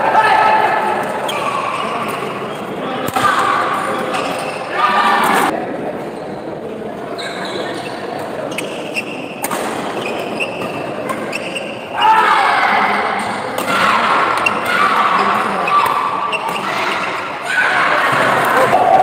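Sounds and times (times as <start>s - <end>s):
shoes squeaking on court: 7.1s - 11.8s
people shouting: 11.9s - 19.0s.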